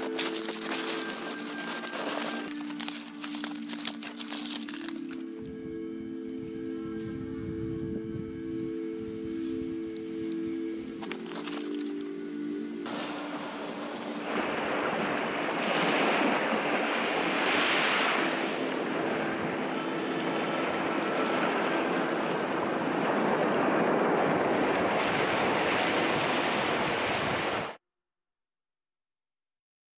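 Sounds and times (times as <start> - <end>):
surf breaking on rocky shore: 0.0 - 5.2, 12.8 - 27.8.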